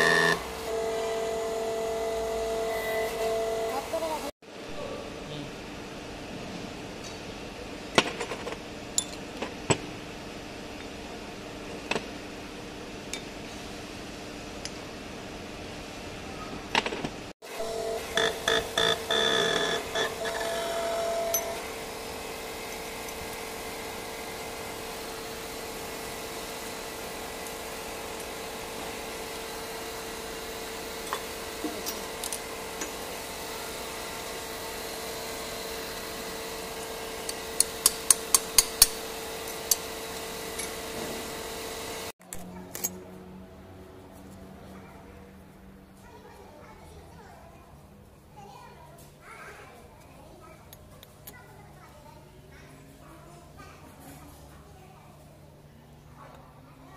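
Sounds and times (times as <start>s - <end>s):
workshop machine humming: 0.0s - 44.1s.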